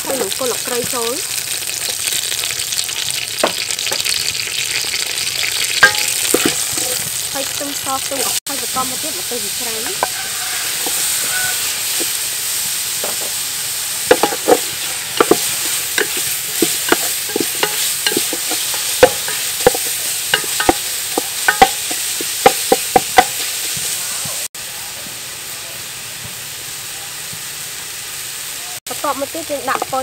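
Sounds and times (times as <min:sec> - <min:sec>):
food sizzling in hot oil: 0:00.0 - 0:30.0
wooden spoon scraping a pot: 0:09.9 - 0:12.2, 0:14.1 - 0:24.0.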